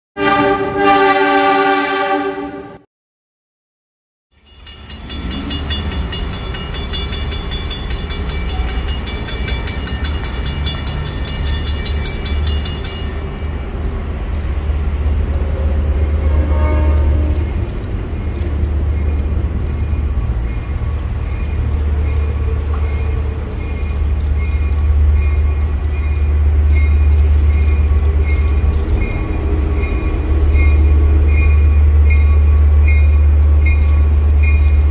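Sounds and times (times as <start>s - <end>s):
railroad crossing bell ringing: 4.3s - 13.6s, 16.8s - 34.9s.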